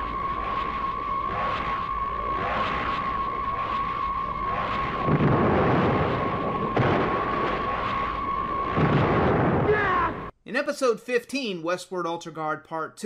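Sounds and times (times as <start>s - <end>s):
heavy rumbling crash noise: 0.0s - 10.3s
high electronic whine: 0.0s - 10.3s.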